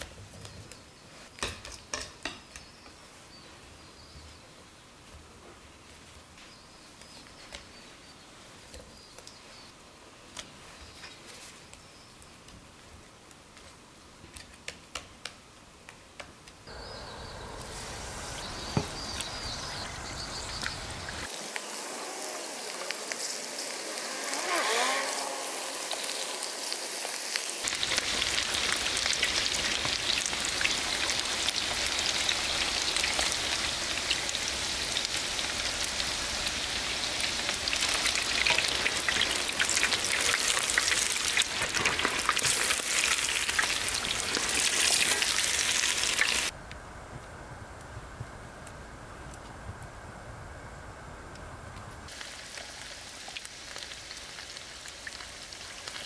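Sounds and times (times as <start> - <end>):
squid deep-frying in hot oil: 18.0 - 46.5, 52.1 - 56.0.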